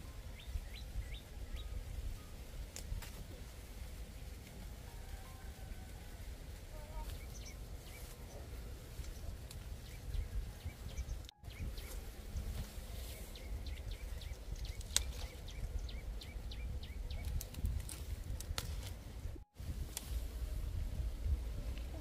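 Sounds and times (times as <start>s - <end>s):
small birds chirping: 0.0s - 4.6s, 6.5s - 19.4s
steady low rumble: 6.2s - 22.0s.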